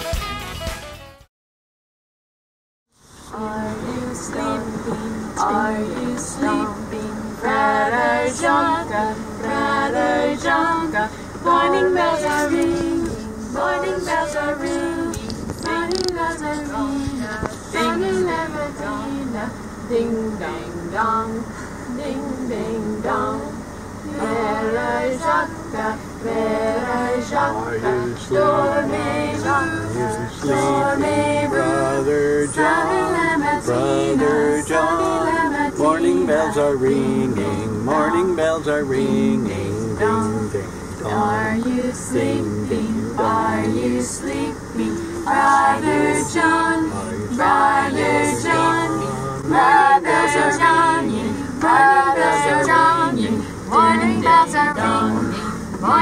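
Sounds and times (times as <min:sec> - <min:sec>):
low steady vehicle hum: 0:02.9 - 0:56.0
group singing unaccompanied: 0:03.2 - 0:56.0.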